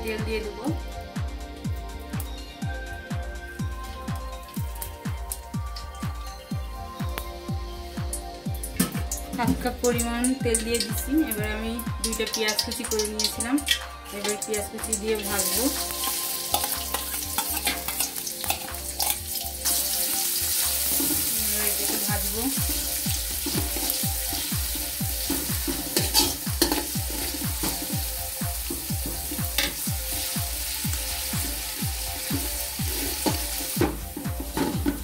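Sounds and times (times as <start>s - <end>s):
onions sizzling in hot oil: 8.9s - 35.0s
spoon stirring in pan: 15.8s - 19.2s, 25.2s - 27.9s.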